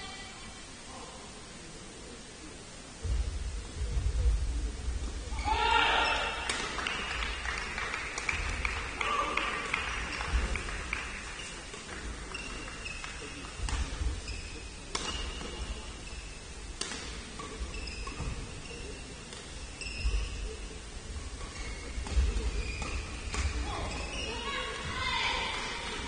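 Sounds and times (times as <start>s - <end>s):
rackets striking shuttlecock: 6.4s - 7.1s, 14.9s - 15.8s, 16.8s - 18.4s
shoes squeaking on court: 9.8s - 24.9s.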